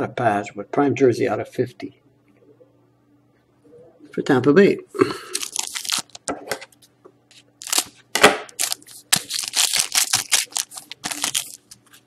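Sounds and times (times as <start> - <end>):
foil wrapper crinkling and tearing: 5.3 - 6.3, 7.6 - 12.0.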